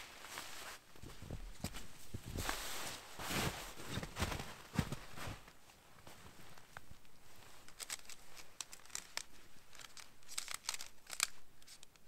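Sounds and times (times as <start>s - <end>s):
nylon tent fabric rustling: 0.0s - 8.6s.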